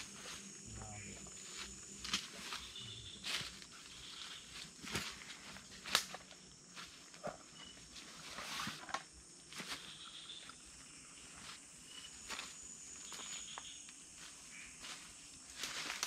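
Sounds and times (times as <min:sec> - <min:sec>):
faint insects calling: 0:00.0 - 0:16.0
footsteps in dry leaves: 0:01.3 - 0:07.1, 0:12.2 - 0:16.0.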